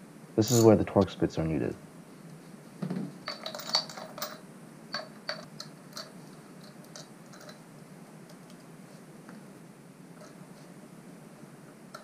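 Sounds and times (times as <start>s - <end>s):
light metallic clinks: 3.2s - 7.6s.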